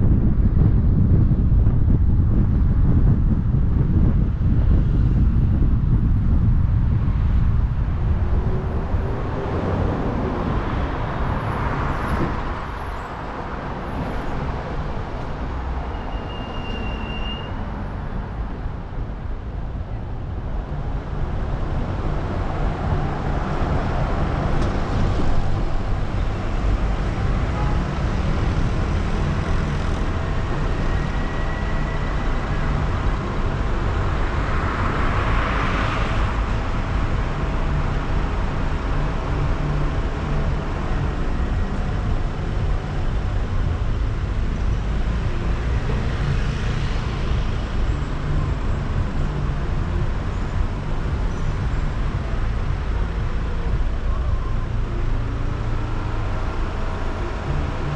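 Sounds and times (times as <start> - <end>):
traffic rumble: 0.0 - 57.9
car passing: 5.8 - 16.2.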